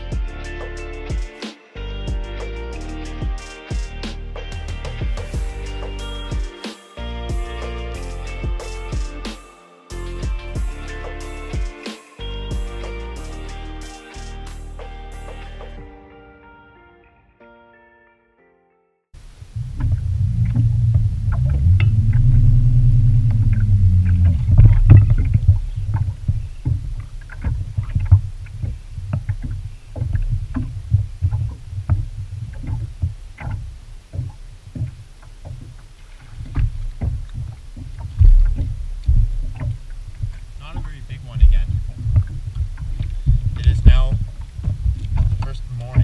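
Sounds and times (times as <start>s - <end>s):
heavy low rumble: 19.2s - 46.0s
water knocking against boat hull: 23.3s - 40.9s, 41.6s - 46.0s.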